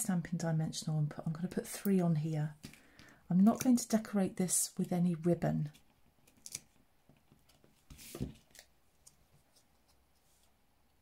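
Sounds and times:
scrape: 7.9 - 8.4.

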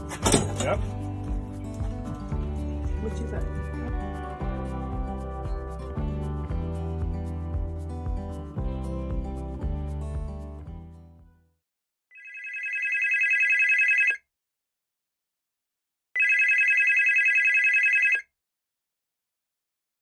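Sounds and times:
background music: 0.0 - 11.4
telephone ringing with warble: 12.1 - 14.2, 16.2 - 18.3.

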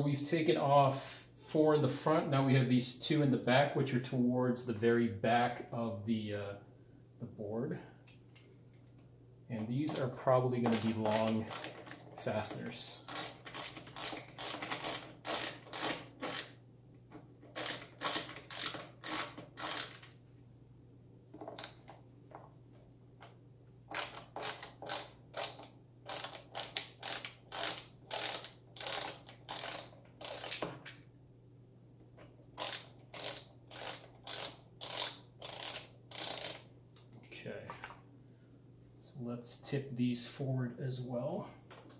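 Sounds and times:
ratcheting screwdriver clicking: 10.7 - 12.1, 13.1 - 16.5, 17.6 - 20.1, 23.9 - 30.7, 32.6 - 36.6.

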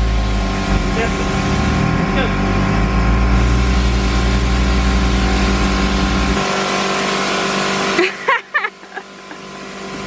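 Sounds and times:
utility vehicle engine humming: 0.0 - 10.0.

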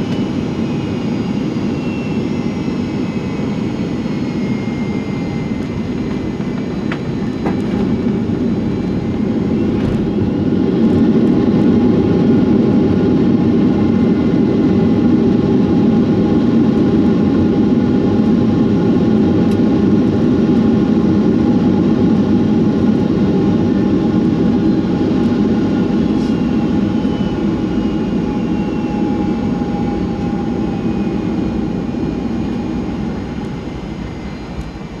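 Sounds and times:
faint whines falling in pitch: 0.0 - 15.9, 23.4 - 35.0
jet engine and airflow rumble: 0.0 - 35.0.

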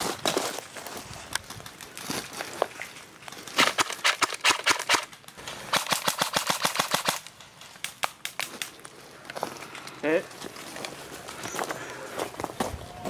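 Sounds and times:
airsoft rifles firing bursts: 3.6 - 7.3.

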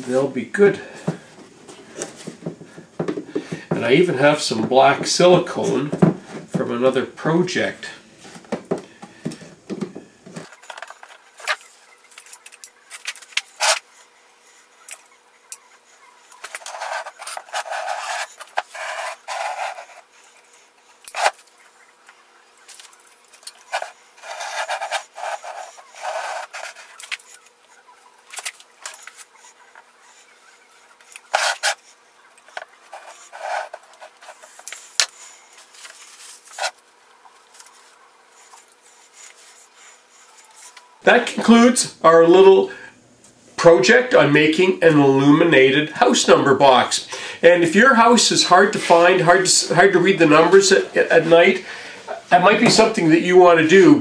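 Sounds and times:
rubbing and scraping: 10.4 - 15.1, 15.7 - 21.6, 22.7 - 40.8.

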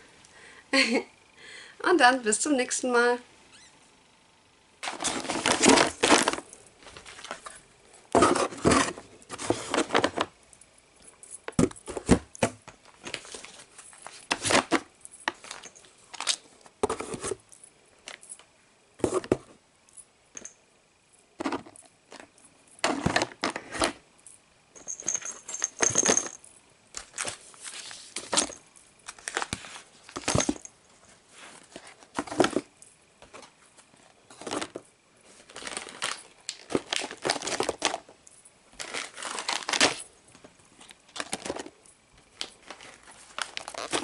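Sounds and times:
items knocking into a box: 4.8 - 7.4, 8.1 - 10.3, 11.5 - 13.3, 22.8 - 24.0, 30.1 - 30.7, 32.1 - 32.7, 34.3 - 34.9, 36.6 - 38.0
packaging rustling and crinkling: 4.8 - 10.3, 12.8 - 17.4, 27.0 - 38.2, 38.8 - 44.0.

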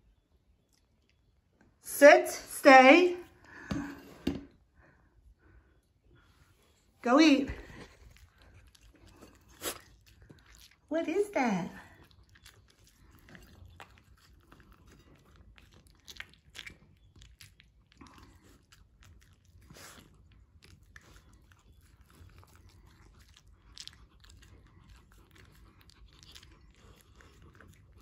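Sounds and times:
dog chewing and crunching: 7.2 - 28.0.

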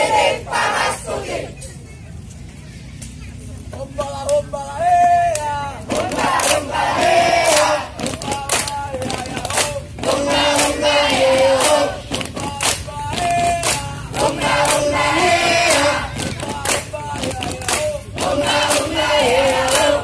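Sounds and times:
group singing in unison: 0.0 - 1.6, 5.4 - 20.0
sharp hand claps: 7.4 - 14.9, 15.6 - 20.0.

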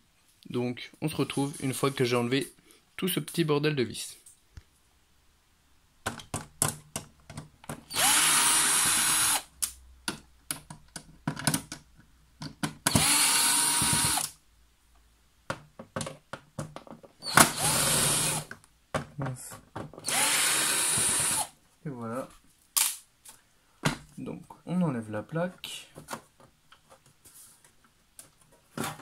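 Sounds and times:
power screwdriver whining: 7.9 - 9.5, 12.9 - 14.3, 17.2 - 18.5, 20.0 - 21.5.

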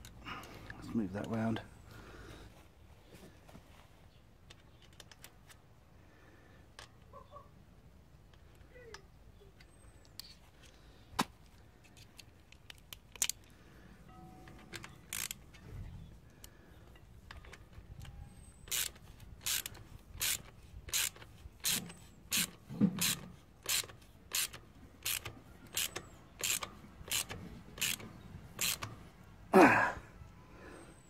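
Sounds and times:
ratcheting driver clicking: 14.5 - 15.6, 17.2 - 29.0.

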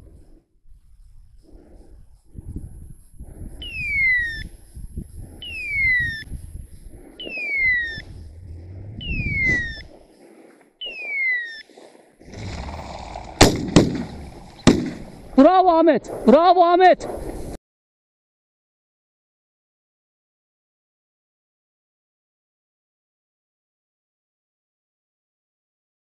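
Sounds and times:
high falling whistle-like tone: 7.3 - 9.9
shotgun shots: 12.3 - 15.4.

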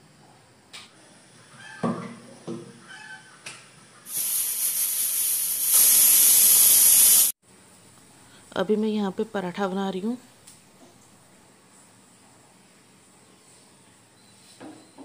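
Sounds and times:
pressure cooker steam hiss: 4.1 - 7.4.

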